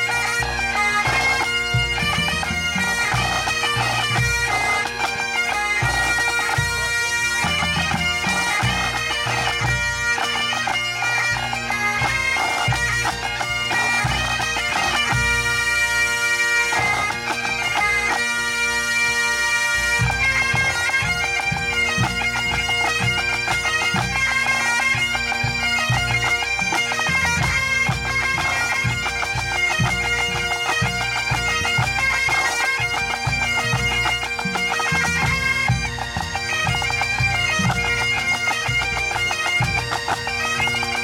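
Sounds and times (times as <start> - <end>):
band drums: 0.0 - 10.0, 19.8 - 24.4, 25.4 - 41.0
bagpipes playing: 0.0 - 41.0.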